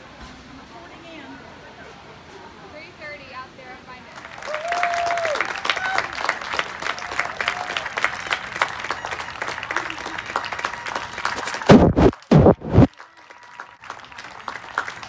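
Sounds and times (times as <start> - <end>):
audience clapping: 4.2 - 15.0
low rushes: 11.4 - 12.9.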